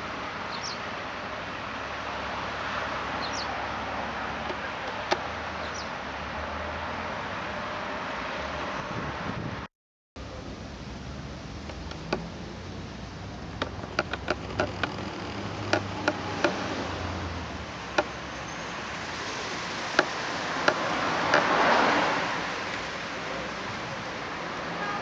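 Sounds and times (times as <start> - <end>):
sharp knocks: 13.6 - 16.6, 20.0 - 21.6.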